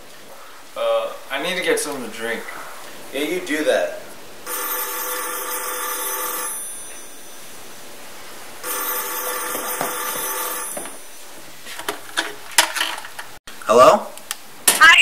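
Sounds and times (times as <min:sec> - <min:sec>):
desk telephone ringing: 0:04.5 - 0:07.9, 0:08.6 - 0:11.4.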